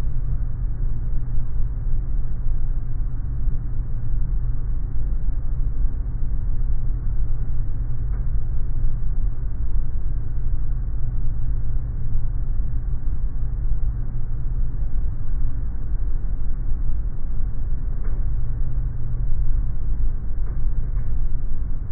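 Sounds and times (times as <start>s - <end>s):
airliner cabin rumble: 20.2s - 21.9s.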